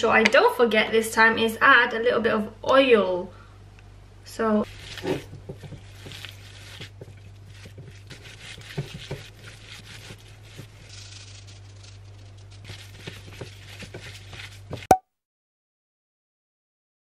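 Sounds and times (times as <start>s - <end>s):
steady low hum: 1.6s - 14.9s
hands squishing minced meat: 4.6s - 11.4s, 12.6s - 14.9s.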